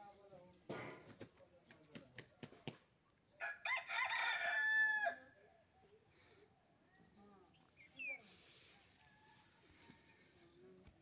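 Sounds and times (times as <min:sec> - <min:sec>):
rooster crowing: 0:03.4 - 0:05.2.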